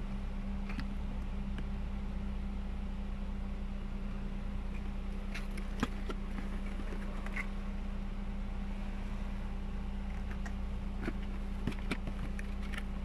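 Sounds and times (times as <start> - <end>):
car engine hum from cabin: 0.0 - 13.0
cardboard box clicks and taps: 10.3 - 12.9.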